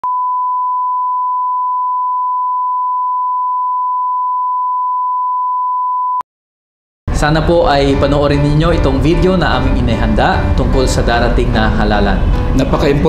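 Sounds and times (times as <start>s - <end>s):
steady test tone beep: 0.0s - 6.2s.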